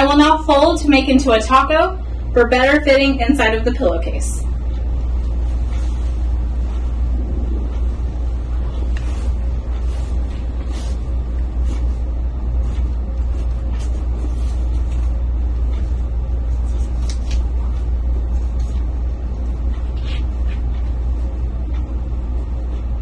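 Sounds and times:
steady low rumble: 0:00.0 - 0:23.0.

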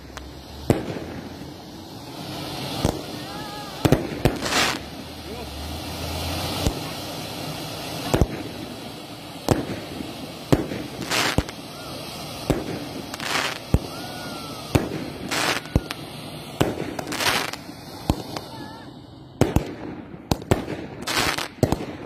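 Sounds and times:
fireworks banging: 0:00.0 - 0:22.0.

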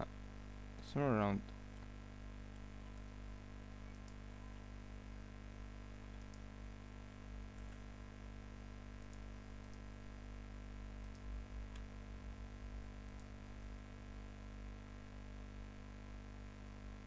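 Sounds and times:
low electrical hum: 0:00.0 - 0:17.0
mouse clicks: 0:06.1 - 0:06.5.

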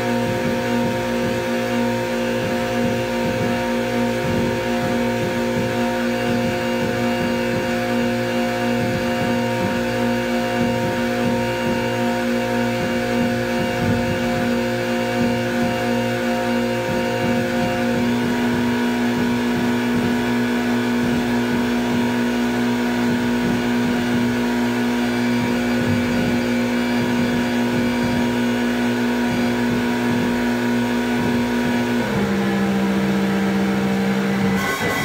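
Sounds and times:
buzzing synthesiser drone: 0:00.0 - 0:35.0.

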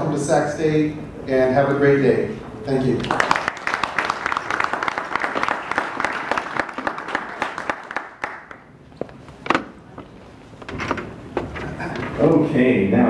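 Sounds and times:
audience applauding: 0:03.0 - 0:08.7.

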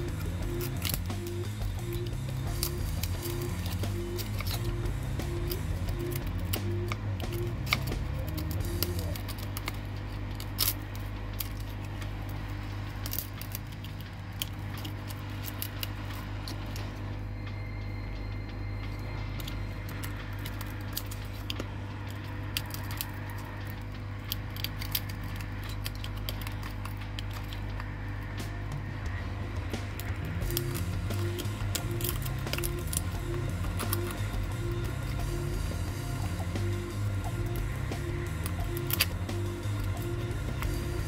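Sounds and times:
steady low hum: 0:00.0 - 0:41.0.

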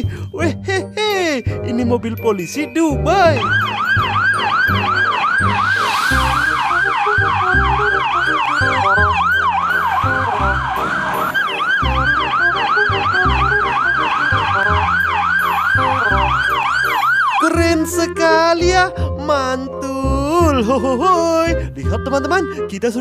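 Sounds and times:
police siren yelping: 0:03.3 - 0:17.6.

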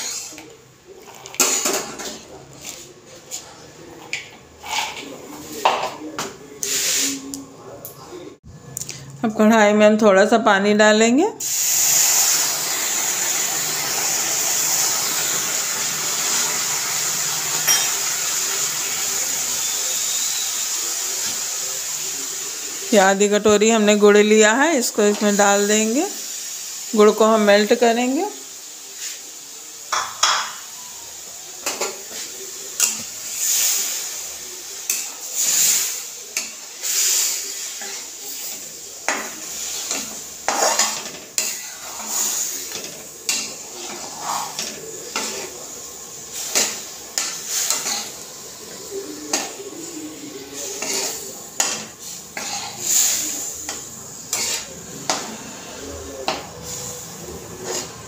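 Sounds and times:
metal spatula scraping a pan: 0:00.0 - 0:03.4, 0:04.5 - 0:05.6, 0:34.9 - 0:45.6, 0:46.3 - 0:48.3, 0:50.4 - 0:58.0.

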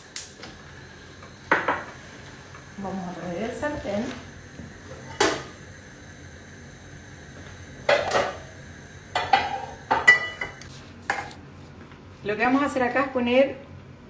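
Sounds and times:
frying pan knocking on hob grates: 0:07.9 - 0:08.4, 0:09.1 - 0:11.2.

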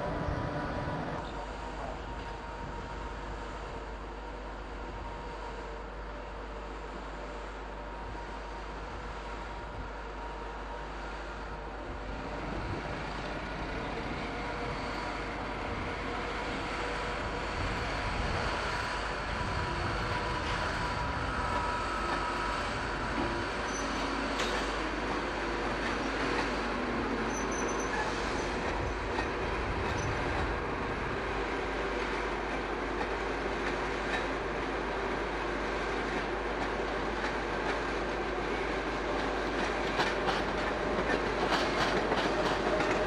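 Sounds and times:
train rumbling over points: 0:07.8 - 0:43.0
thin wheel squeal: 0:23.7 - 0:24.1, 0:27.3 - 0:28.6
train wheel clicks: 0:39.2 - 0:43.0.

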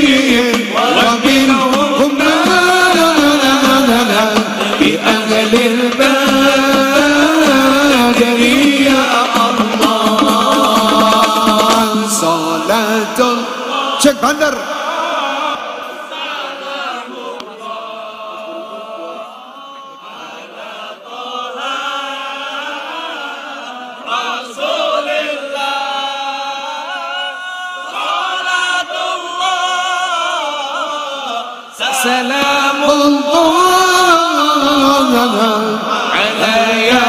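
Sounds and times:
drumbeats: 0:00.0 - 0:18.1, 0:31.8 - 0:35.1
many voices singing devotional song: 0:00.0 - 0:37.0.

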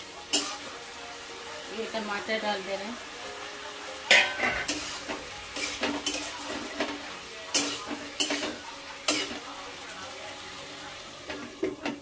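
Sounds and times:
light sizzle: 0:00.0 - 0:12.0
metal spatula clinking on pan: 0:04.1 - 0:06.3.

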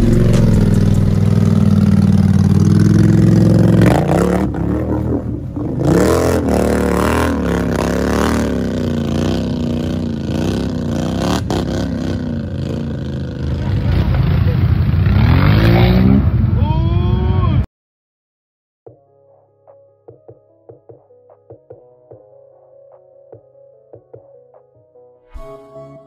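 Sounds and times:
atv engine revving: 0:00.0 - 0:16.6.

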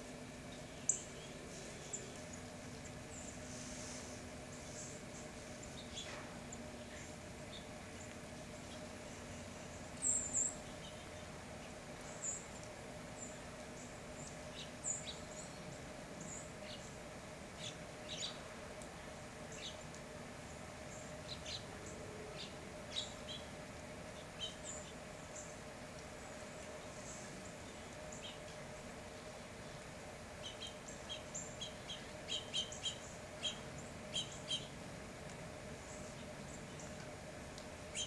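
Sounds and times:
faint steady hum: 0:00.0 - 0:38.0
songbirds chip calls: 0:29.2 - 0:34.8, 0:35.8 - 0:38.0.

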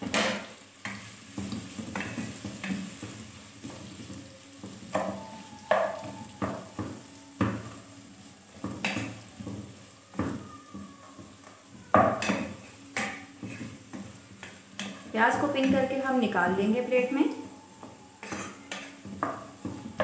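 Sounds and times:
onions sizzling in hot oil: 0:00.0 - 0:20.0
metal pot ringing: 0:04.9 - 0:07.8, 0:14.4 - 0:20.0
wooden spatula scraping metal pot: 0:18.2 - 0:19.4.

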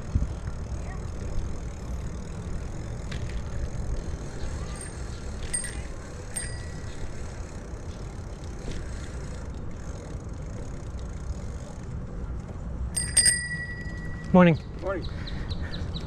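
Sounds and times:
wind and tyre noise: 0:00.0 - 0:16.0
bicycle bell ringing: 0:04.7 - 0:07.6, 0:12.9 - 0:14.6.

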